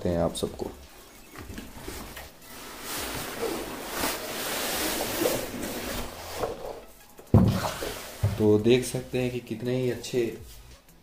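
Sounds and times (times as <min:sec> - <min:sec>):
cardboard and fabric scraping: 0:01.6 - 0:06.9.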